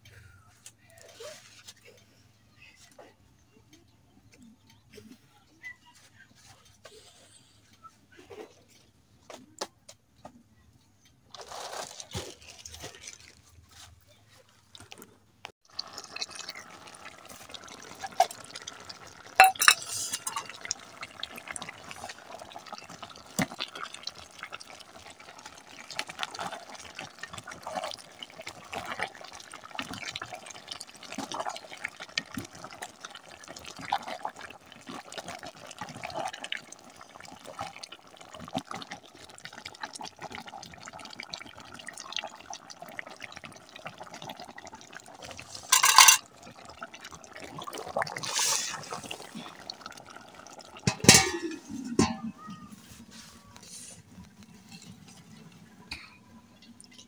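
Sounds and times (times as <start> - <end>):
stew bubbling and popping: 14.5 - 57.0.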